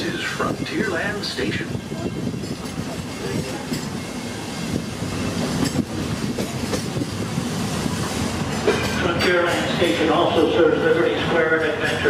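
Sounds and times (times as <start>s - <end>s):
wheels rumbling on rail: 0.0s - 12.0s
track knocks: 2.3s - 9.8s.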